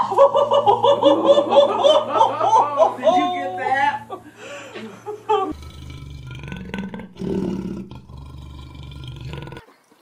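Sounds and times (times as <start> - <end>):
lion roaring: 5.5 - 9.6.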